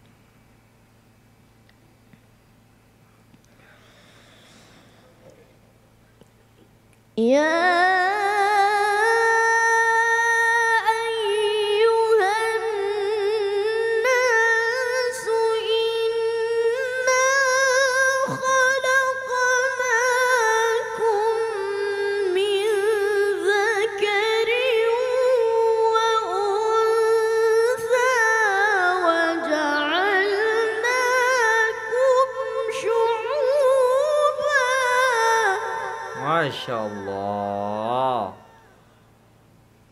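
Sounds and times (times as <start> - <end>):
boy reciting melodically: 7.2 - 38.6.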